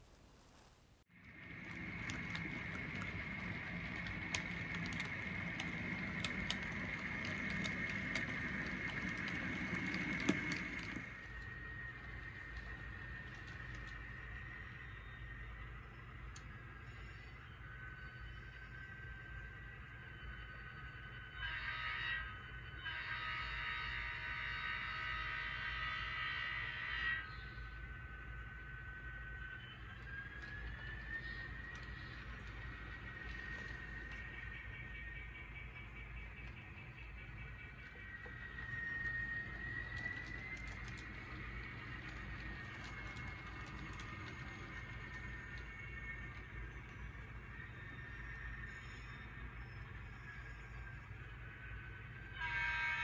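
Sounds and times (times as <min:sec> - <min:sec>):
steady high whine: 0:00.0 - 0:53.0
model train wheels rumbling: 0:01.0 - 0:53.0
sharp clicks of wheels on track: 0:01.1 - 0:21.0, 0:27.3 - 0:51.3
model locomotive air horn: 0:21.3 - 0:27.6, 0:52.2 - 0:53.0.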